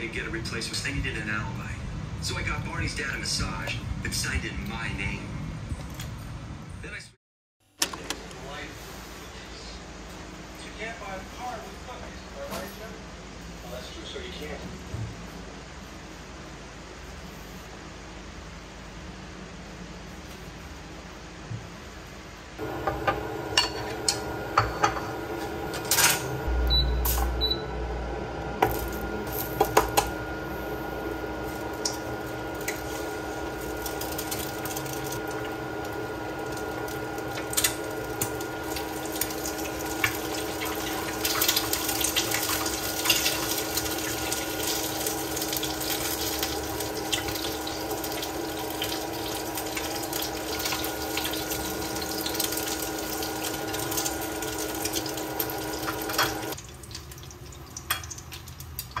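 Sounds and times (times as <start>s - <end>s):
cooktop hum: 7.6s - 59.0s
eggs frying in a pan: 31.0s - 59.0s.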